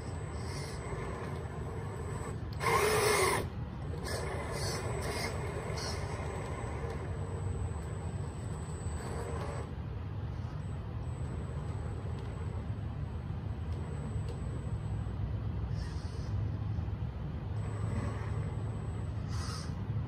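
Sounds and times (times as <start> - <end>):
electric motor whining: 0.0 - 9.7, 17.6 - 19.8.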